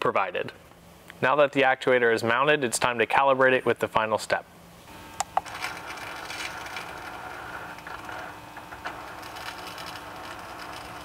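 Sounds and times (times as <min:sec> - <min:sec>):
faint hum: 0:00.0 - 0:11.0
actuator motor whirring: 0:04.9 - 0:11.0.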